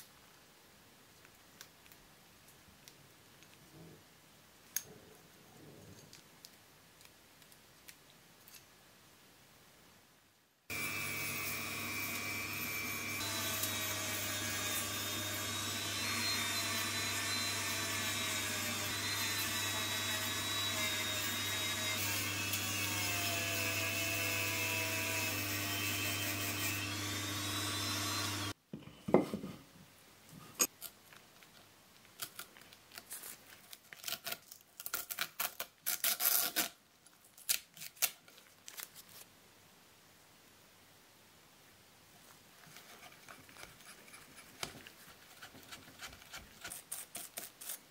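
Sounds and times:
rotary tool whining on metal: 10.7 - 28.6.

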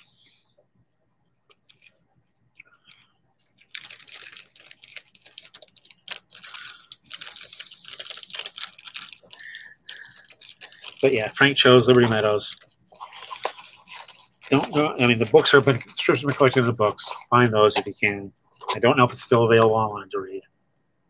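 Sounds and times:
objects clicking and rustling: 2.6 - 18.0.

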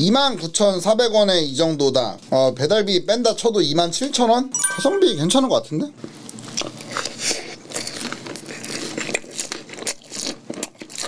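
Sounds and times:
chewing fried chicken: 6.2 - 11.0.

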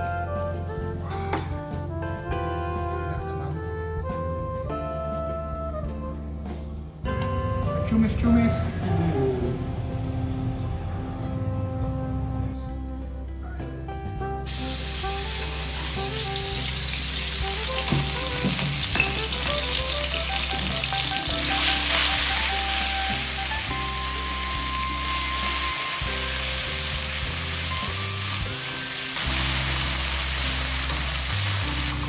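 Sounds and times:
background music: 0.0 - 32.0
squid sizzling in a pan: 14.5 - 32.0.

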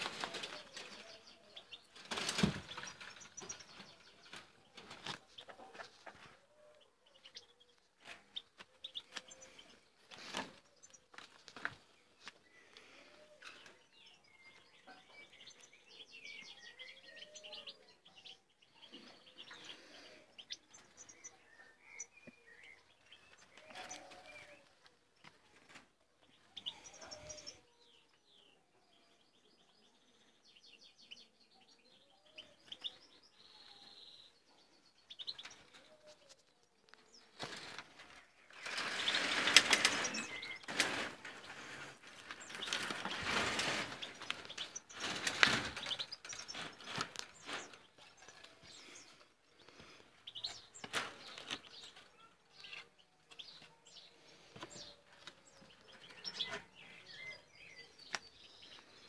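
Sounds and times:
birds twittering and trilling: 0.0 - 59.0
loud rustling: 37.4 - 48.4.

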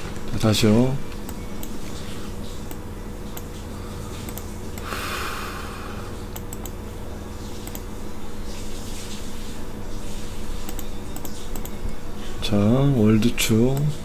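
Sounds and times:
low steady hum: 0.0 - 14.0
computer mouse clicks: 4.2 - 4.9, 6.3 - 6.8, 7.6 - 7.9, 10.6 - 11.8.

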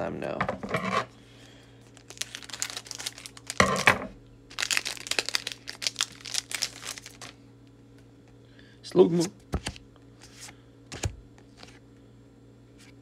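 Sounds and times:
foil wrapper crinkling: 1.8 - 3.9, 4.5 - 7.4.

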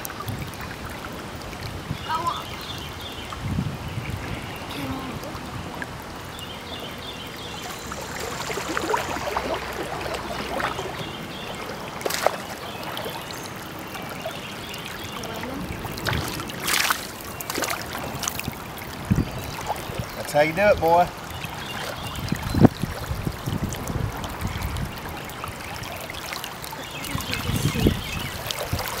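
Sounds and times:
creek water running: 0.0 - 29.0
fish splashing at the surface: 6.4 - 20.4, 21.0 - 29.0.

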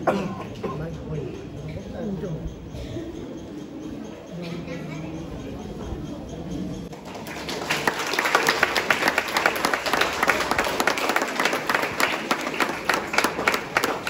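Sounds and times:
audience applauding: 6.9 - 14.0.

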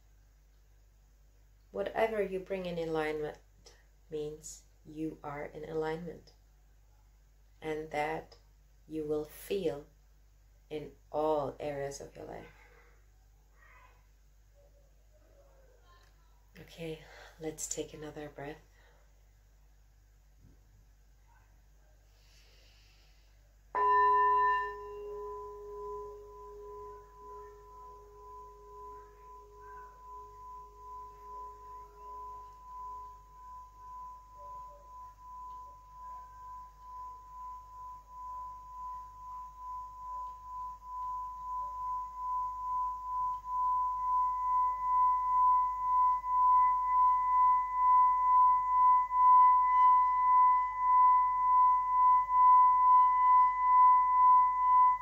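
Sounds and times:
singing bowl rim ringing: 23.8 - 55.0
singing bowl struck with mallet: 23.8 - 55.0.

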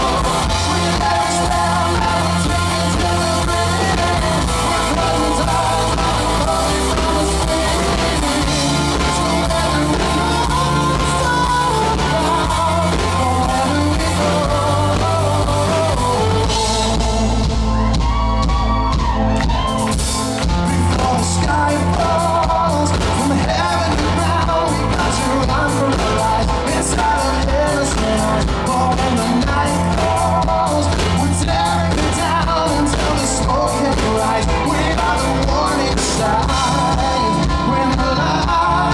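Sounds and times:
man singing lead: 0.0 - 18.5, 20.4 - 38.9
live rock band playing: 0.0 - 38.9.

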